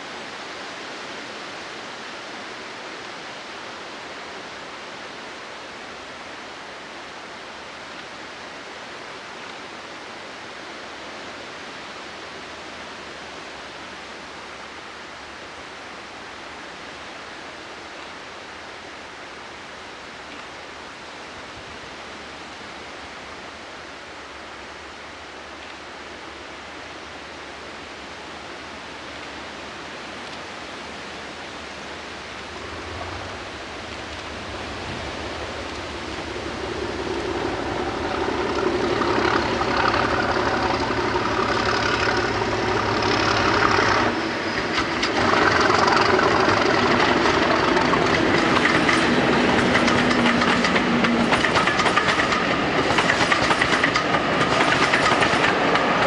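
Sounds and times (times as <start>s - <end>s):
diesel locomotive engine passing: 31.7s - 56.0s
steady rushing background: 31.7s - 56.0s
train wheels clickety-clack: 32.5s - 56.0s.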